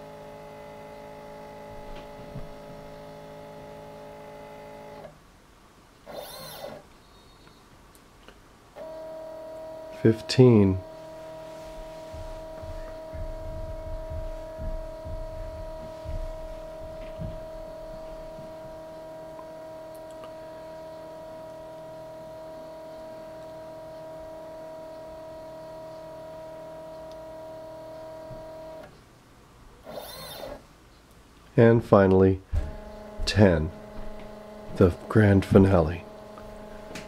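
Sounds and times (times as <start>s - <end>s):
stepper motor whine: 0.0s - 5.1s, 6.1s - 6.8s, 8.8s - 28.9s, 29.8s - 30.6s, 32.5s - 37.0s
low thuds: 11.6s - 18.8s, 32.4s - 35.8s.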